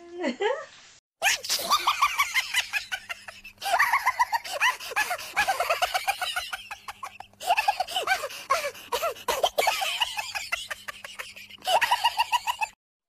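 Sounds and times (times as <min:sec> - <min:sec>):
comic high-pitched squawking: 0:01.2 - 0:02.0.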